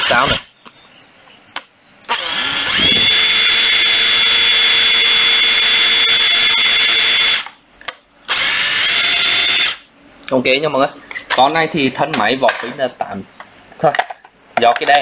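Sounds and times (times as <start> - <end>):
impact driver motor whine: 2.1 - 7.5.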